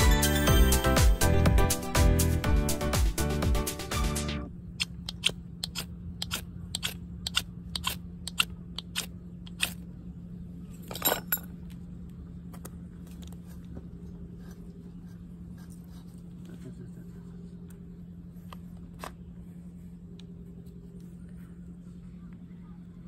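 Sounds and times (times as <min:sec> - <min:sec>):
knife shaving wooden stick: 0:05.6 - 0:09.8, 0:13.4 - 0:16.6.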